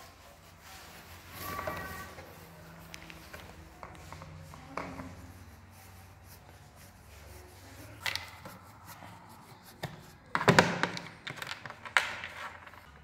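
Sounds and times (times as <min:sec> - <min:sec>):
faint scraping: 0:00.0 - 0:10.3.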